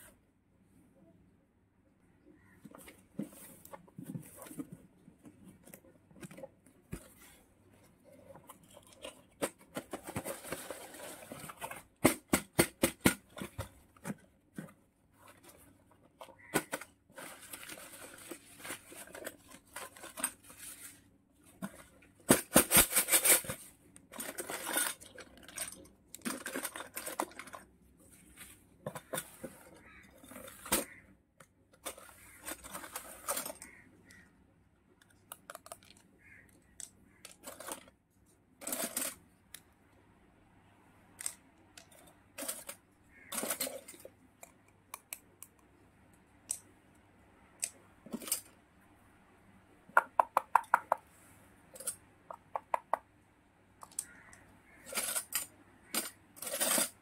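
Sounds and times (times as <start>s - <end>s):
plastic utensils clicking: 35.0s - 37.9s.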